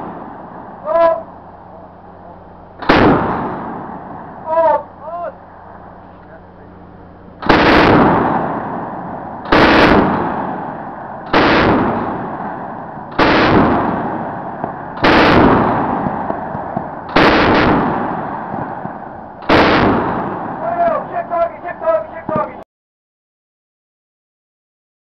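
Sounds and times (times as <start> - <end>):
deck gun firing: 2.8 - 3.8, 7.4 - 8.8, 9.4 - 10.6, 11.3 - 12.5, 13.1 - 20.6
gunshot echo: 2.8 - 4.7, 7.4 - 21.0.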